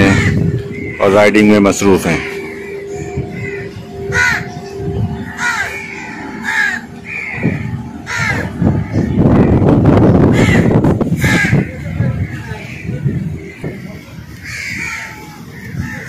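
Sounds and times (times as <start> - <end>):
loud rushing noise: 0.0 - 13.6
crows cawing: 0.0 - 16.0
steady hum: 0.0 - 16.0.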